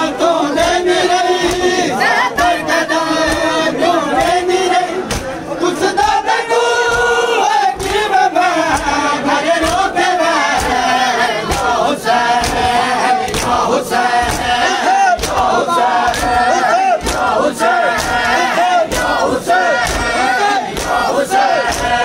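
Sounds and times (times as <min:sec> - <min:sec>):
men singing in unison: 0:00.0 - 0:22.0
hand slaps on chests: 0:00.6 - 0:01.9, 0:05.0 - 0:05.4, 0:06.8 - 0:22.0.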